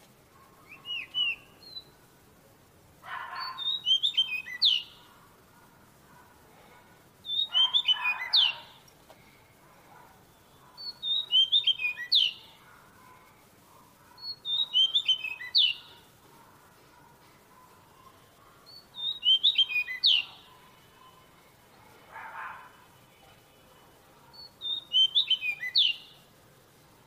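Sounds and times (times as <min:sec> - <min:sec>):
bird singing: 0:00.3 - 0:02.0, 0:03.1 - 0:05.4, 0:07.2 - 0:09.4, 0:10.0 - 0:13.4, 0:14.0 - 0:22.9, 0:24.2 - 0:26.3.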